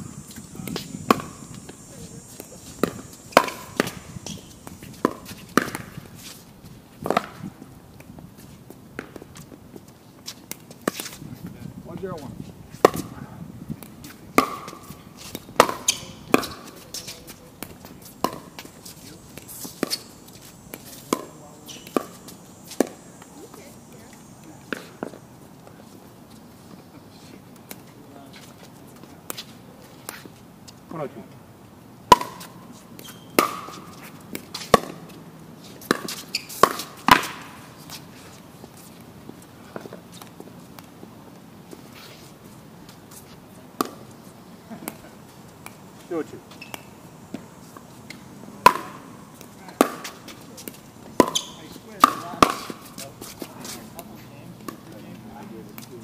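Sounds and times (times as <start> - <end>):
paddles hitting plastic ball: 48.6 - 53.4.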